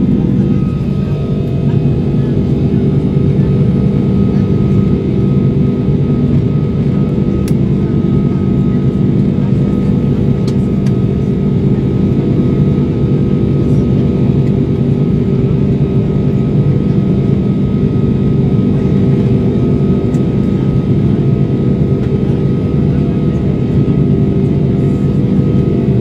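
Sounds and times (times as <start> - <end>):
jet engine deep drone: 0.0 - 26.0
jet engine high whine: 0.0 - 26.0.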